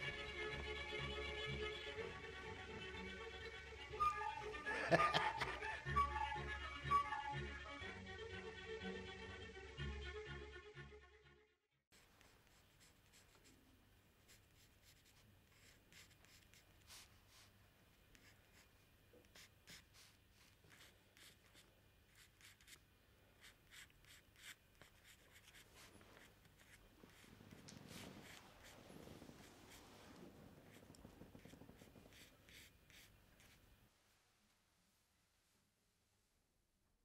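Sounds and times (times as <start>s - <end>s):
bowed string music: 0.0s - 11.3s
faint rustles and ticks: 25.6s - 32.5s.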